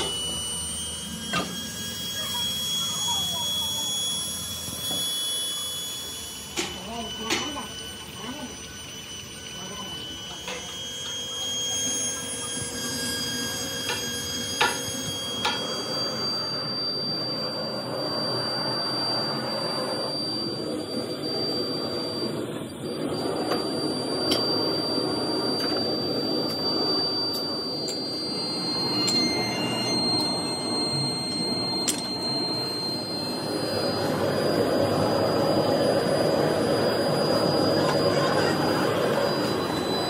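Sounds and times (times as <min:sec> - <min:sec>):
thin high whine: 0:00.0 - 0:40.0
sharp metal clinks: 0:27.4 - 0:33.1.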